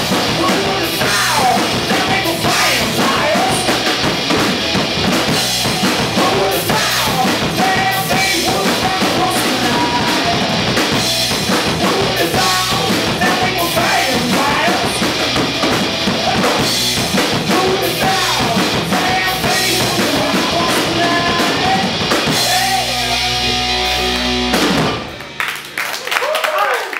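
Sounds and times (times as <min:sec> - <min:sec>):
person singing: 0:00.0 - 0:03.9, 0:05.8 - 0:10.6, 0:11.5 - 0:15.3, 0:16.1 - 0:24.2
drum kit drumming: 0:00.0 - 0:25.4
electric guitar: 0:00.0 - 0:26.0.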